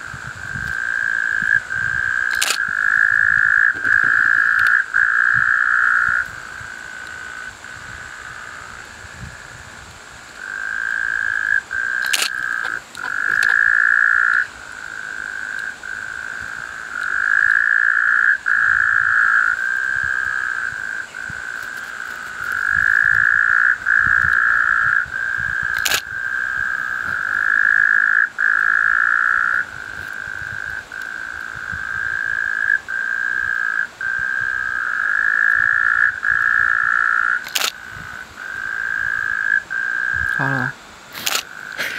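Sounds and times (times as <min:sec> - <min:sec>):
frogs calling in chorus: 0:00.0 - 0:09.5, 0:10.2 - 0:41.9
sharp clicks: 0:02.3 - 0:02.7, 0:12.0 - 0:13.6, 0:25.7 - 0:26.1, 0:37.4 - 0:37.8, 0:41.1 - 0:41.5.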